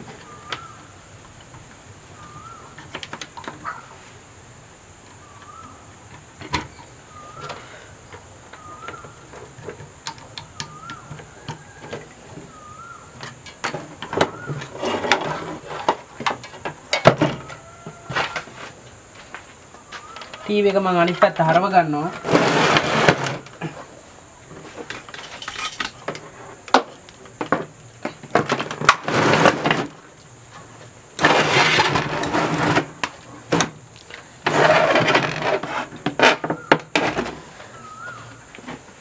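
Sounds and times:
bird chirping: 0:02.1 - 0:02.9, 0:05.1 - 0:06.0, 0:06.6 - 0:09.6, 0:10.2 - 0:14.9, 0:19.8 - 0:22.2, 0:37.5 - 0:38.5
clicks and knocks of handled parts: 0:24.6 - 0:29.0.

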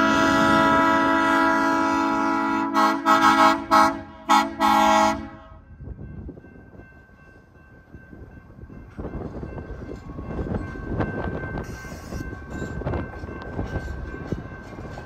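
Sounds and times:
train horn: 0:00.0 - 0:05.6
train rumbling: 0:00.0 - 0:15.0.

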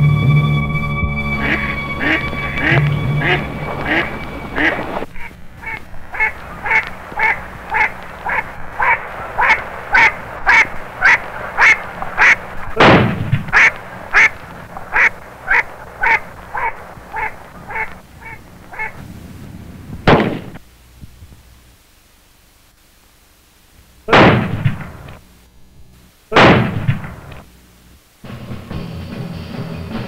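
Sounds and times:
low hiss: 0:00.0 - 0:30.0
duck quacking: 0:01.3 - 0:19.0
shotgun shots: 0:12.8 - 0:13.7, 0:20.0 - 0:20.6, 0:24.1 - 0:25.1, 0:26.3 - 0:27.3.

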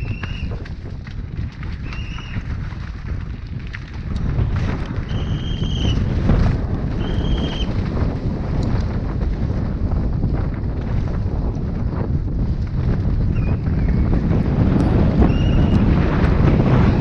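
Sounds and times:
tyres rumbling over rough dirt: 0:00.0 - 0:17.0
wind buffeting microphone: 0:00.0 - 0:17.0.

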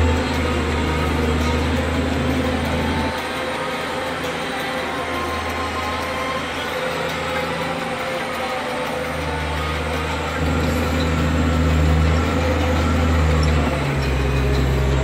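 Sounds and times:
diesel engine running: 0:00.0 - 0:15.0.

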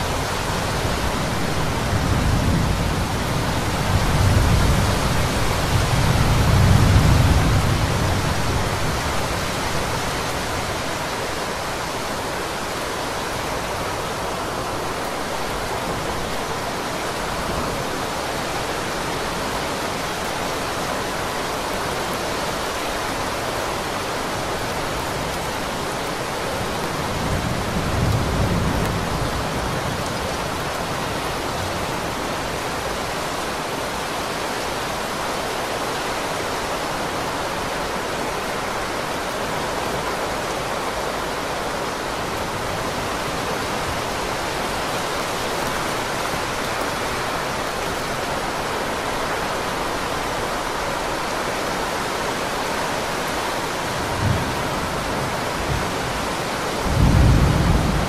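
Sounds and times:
heavy rain falling: 0:00.0 - 0:58.0
distant thunder rumble: 0:56.8 - 0:58.0.

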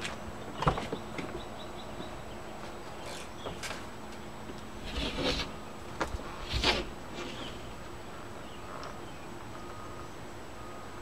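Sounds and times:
knife scraping through urethane: 0:04.8 - 0:05.6, 0:06.3 - 0:07.5.

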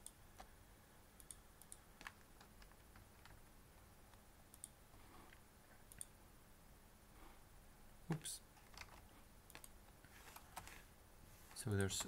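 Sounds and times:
computer mouse clicks: 0:01.2 - 0:03.4, 0:04.5 - 0:06.2, 0:08.6 - 0:10.8.

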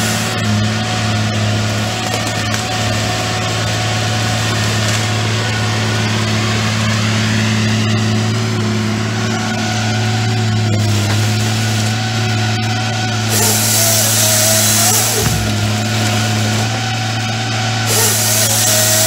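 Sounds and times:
diesel engine running under load: 0:00.0 - 0:19.0
machine whine: 0:00.0 - 0:19.0.

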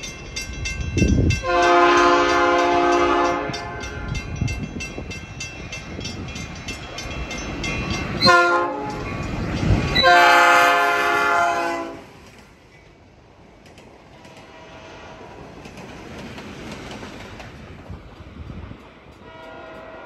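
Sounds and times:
diesel locomotive engine rumbling: 0:00.0 - 0:20.0
locomotive horn blasts: 0:01.4 - 0:04.2, 0:08.2 - 0:09.0, 0:10.0 - 0:12.1, 0:19.2 - 0:20.0.

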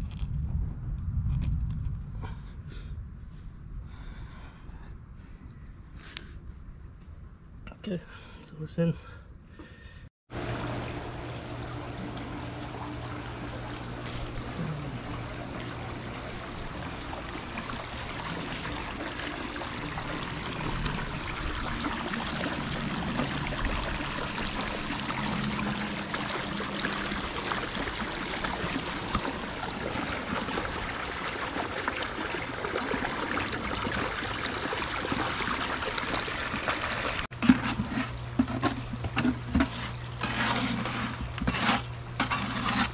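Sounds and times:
low hum: 0:10.3 - 0:31.6
water jet splashing into pool: 0:10.3 - 0:37.3.

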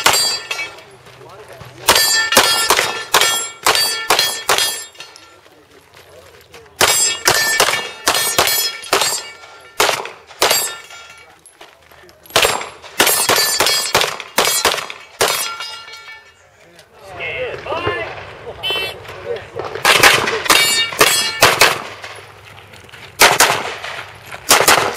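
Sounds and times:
pistol shots: 0:00.0 - 0:00.5, 0:01.8 - 0:04.9, 0:06.8 - 0:10.9, 0:12.3 - 0:15.8, 0:19.6 - 0:22.2, 0:23.2 - 0:24.9
steel targets clanging: 0:00.0 - 0:01.0, 0:01.8 - 0:05.5, 0:06.8 - 0:11.6, 0:12.3 - 0:16.6, 0:19.9 - 0:22.2.

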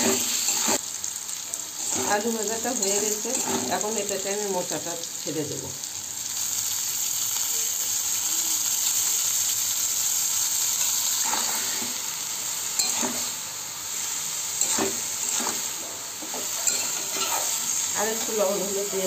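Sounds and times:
hot oil sizzling: 0:00.0 - 0:19.0
metal spatula scraping pan: 0:02.8 - 0:03.8, 0:12.8 - 0:13.3, 0:14.6 - 0:19.0.

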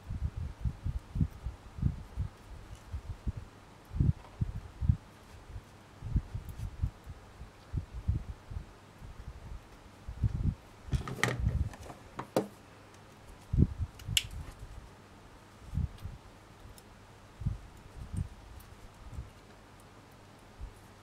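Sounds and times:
wire being wrapped by hand: 0:00.9 - 0:04.4, 0:05.0 - 0:07.7, 0:09.6 - 0:14.9, 0:17.6 - 0:21.0.

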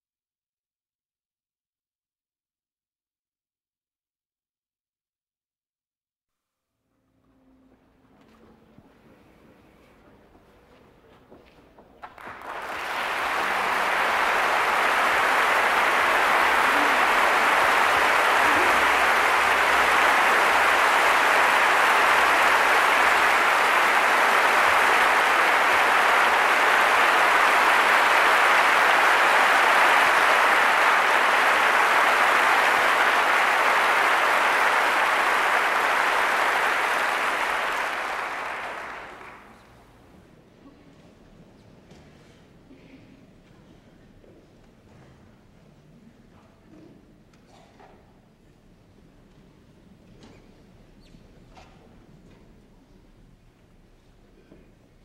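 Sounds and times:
audience applauding: 0:12.0 - 0:39.8.

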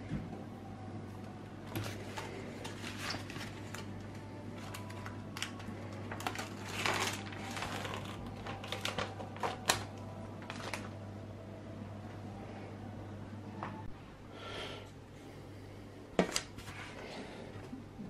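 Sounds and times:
low steady hum: 0:00.0 - 0:18.0
packaging crinkling: 0:01.7 - 0:11.0.

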